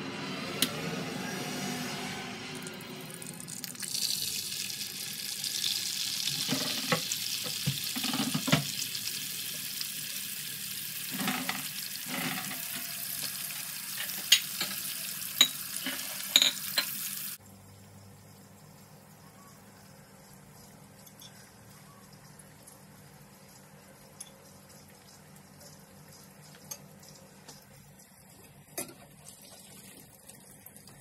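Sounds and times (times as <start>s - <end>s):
egg sizzling in oil: 2.6s - 17.4s, 20.2s - 31.0s
oil popping and crackling: 3.4s - 10.1s.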